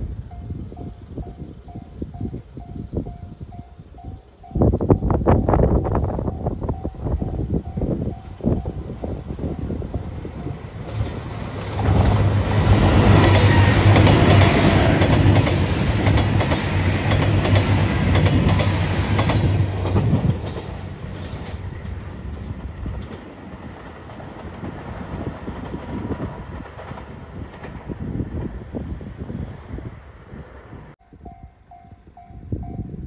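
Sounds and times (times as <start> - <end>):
diesel train engine drone: 0.0 - 33.0
train wheels clacking: 6.8 - 28.6.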